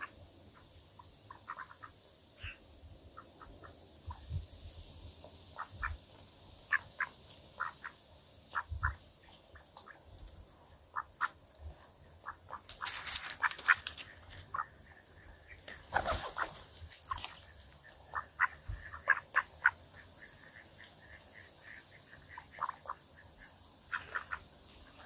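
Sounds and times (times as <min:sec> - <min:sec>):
rustling on grass: 0:00.0 - 0:25.0
birds pecking at bread: 0:09.2 - 0:14.8.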